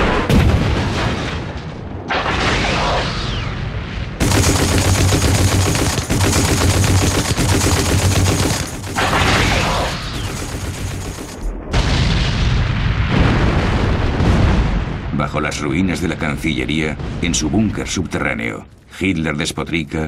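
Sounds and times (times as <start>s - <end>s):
rapid gunfire: 4.2s - 11.8s.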